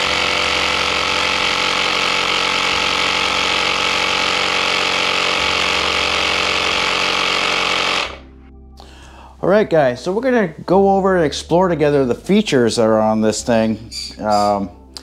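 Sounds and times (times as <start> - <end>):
electric tire inflator running: 0.0 - 8.3.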